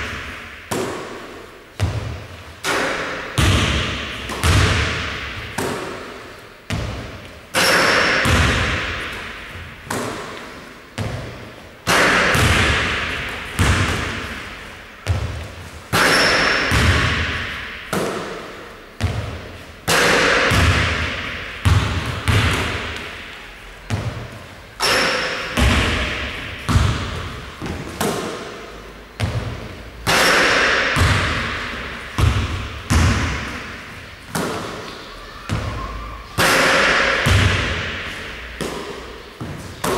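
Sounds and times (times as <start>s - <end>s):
basketball hitting hoop: 1.8s - 10.4s, 11.9s - 23.3s, 23.9s - 28.6s, 29.2s - 34.9s, 36.4s - 39.9s
basketball bouncing on wooden floor: 3.4s - 5.9s, 12.2s - 14.4s, 15.0s - 18.2s, 19.0s - 19.4s, 20.5s - 23.1s, 23.9s - 24.4s, 25.6s - 28.3s, 29.2s - 29.8s, 31.0s - 33.7s.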